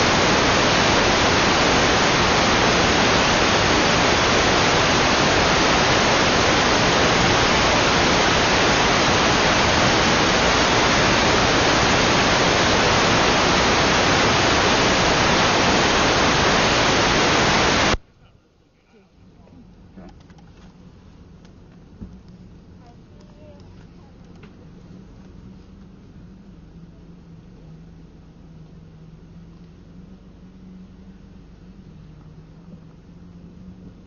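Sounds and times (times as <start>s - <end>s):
static hiss: 0.0s - 18.0s.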